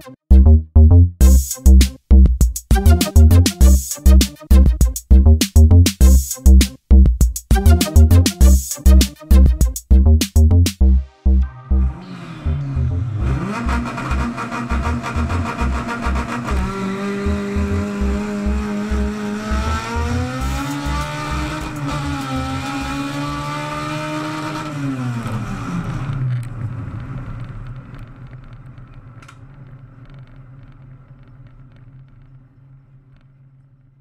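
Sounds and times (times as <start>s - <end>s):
race car engine revving: 11.7s - 26.4s.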